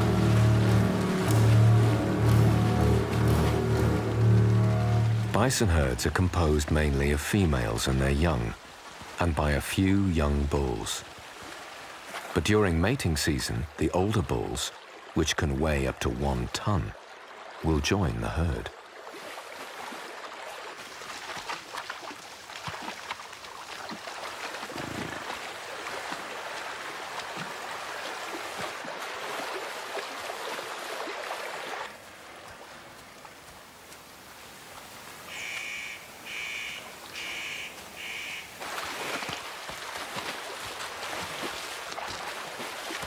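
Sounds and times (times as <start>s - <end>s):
water splashing around animals: 0.0s - 43.0s
bird calls: 35.3s - 38.6s.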